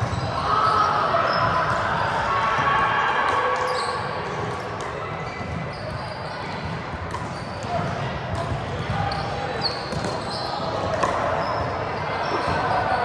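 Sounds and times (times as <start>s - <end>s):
players' voices: 0.0s - 13.0s
volleyballs being struck: 3.3s - 12.8s
sneakers squeaking on hardwood: 5.1s - 13.0s.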